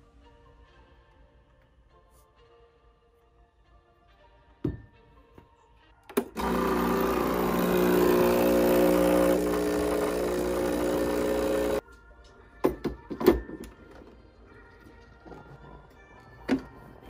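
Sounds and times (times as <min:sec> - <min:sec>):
espresso machine pump buzzing: 0:06.4 - 0:11.8.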